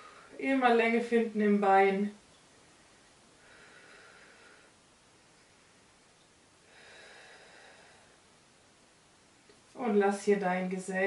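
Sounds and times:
soft breathing: 0.0 - 0.4, 3.0 - 5.7, 6.6 - 8.6.

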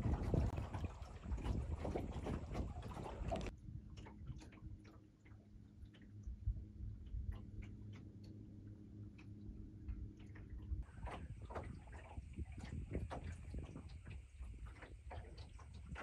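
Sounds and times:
wind on microphone: 0.0 - 4.8, 10.6 - 16.0
water noise: 0.0 - 16.0
light ticks and clicks: 7.0 - 10.8.

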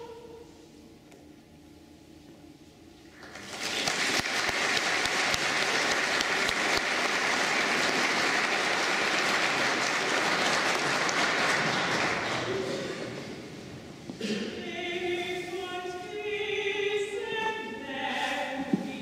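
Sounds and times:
audience applause: 3.1 - 13.3.

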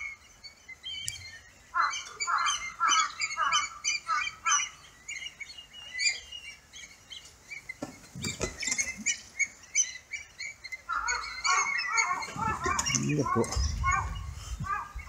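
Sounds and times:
kites calling: 10.8 - 15.0.

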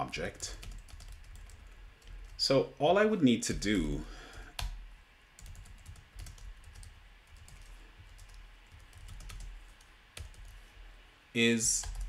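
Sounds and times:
faint keyboard typing: 0.2 - 2.5, 3.5 - 4.8, 5.4 - 10.8, 11.6 - 12.0.

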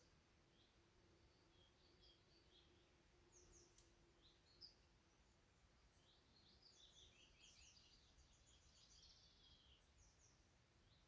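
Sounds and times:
low hiss: 0.0 - 11.0
songbirds chirping: 0.0 - 11.0
small click: 3.7 - 4.0.

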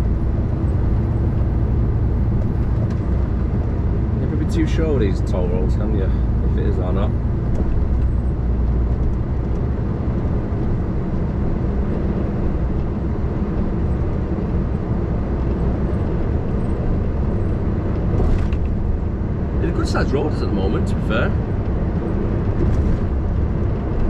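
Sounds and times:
diesel engine: 0.0 - 24.0.

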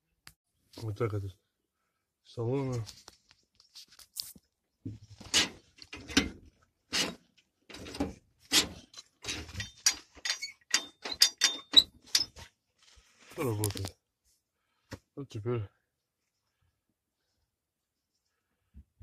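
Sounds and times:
metallic pedal linkage clicks: 9.5 - 12.3.

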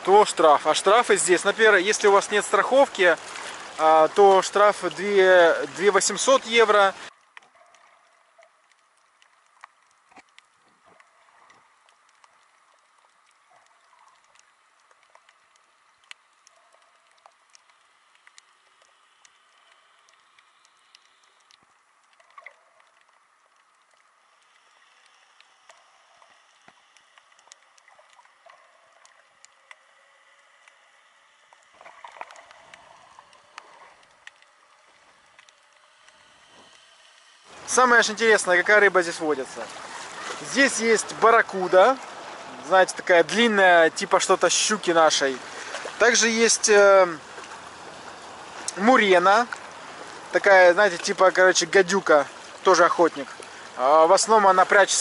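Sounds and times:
soft hiss: 0.0 - 55.0
underwater clicks and pops: 7.2 - 30.0.

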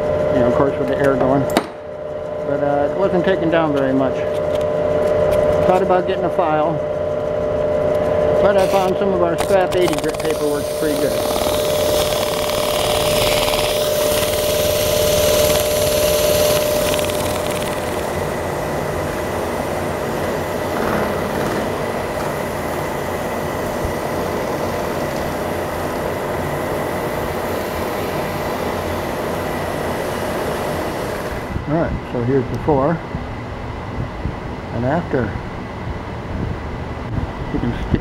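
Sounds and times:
drill press running: 0.0 - 31.6
sandpaper sanding metal: 8.4 - 17.2.

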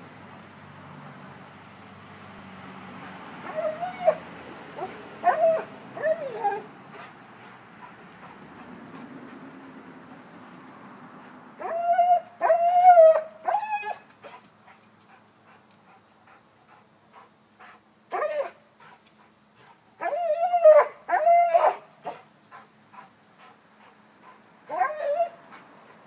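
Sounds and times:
dog whining: 3.5 - 4.2, 4.8 - 6.7, 24.7 - 25.4
faint ticks: 18.8 - 19.8.

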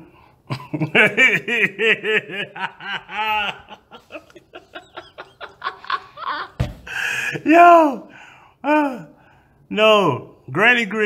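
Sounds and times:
man laughing: 0.5 - 7.9.

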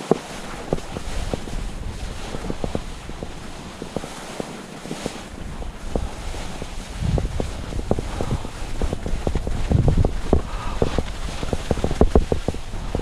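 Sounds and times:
skis scraping over snow: 0.0 - 13.0
wind buffeting microphone: 0.0 - 13.0
sharp clicks and clatter: 5.9 - 13.0.

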